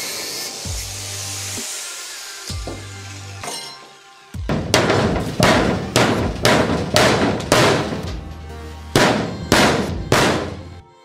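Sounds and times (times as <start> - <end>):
sharp percussive hits: 4.5 - 8.3, 9.0 - 10.8.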